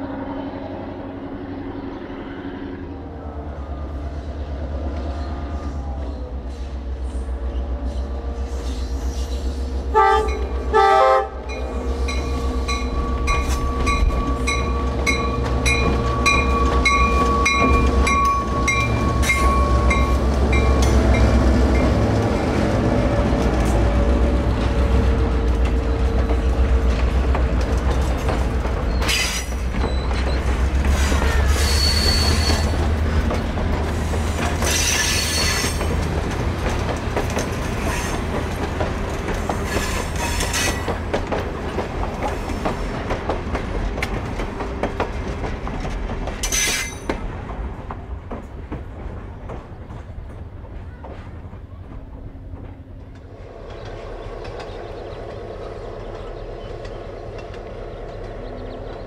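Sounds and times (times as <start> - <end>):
diesel locomotive rumble: 0.0 - 59.0
wheels clicking over rail joints: 11.5 - 59.0
high-pitched wheel squeals: 31.0 - 32.8, 34.6 - 35.8.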